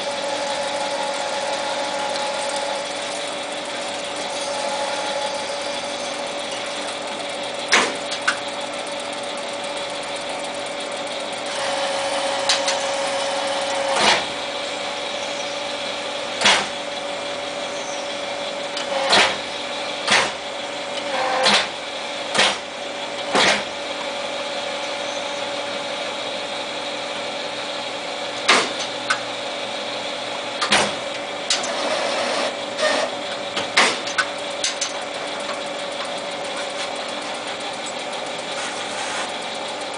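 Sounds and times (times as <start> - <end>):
lathe humming: 0.0 - 23.2, 34.3 - 39.9.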